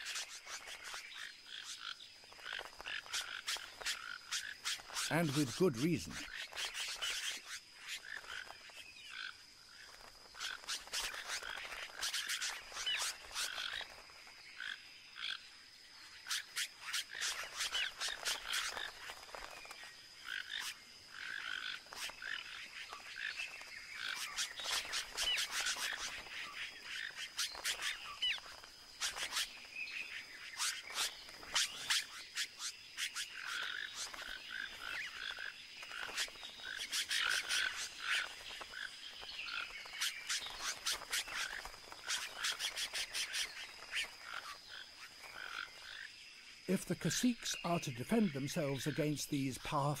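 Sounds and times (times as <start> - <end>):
birds giving harsh alarm calls: 0.0 - 9.3, 16.2 - 46.1.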